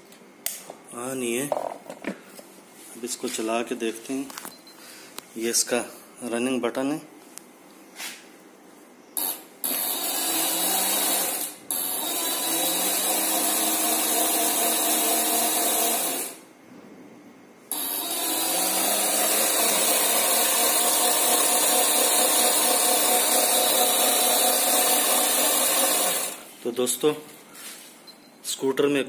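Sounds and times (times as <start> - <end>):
small electric motor spinning: 9.2 - 16.4, 17.7 - 26.5.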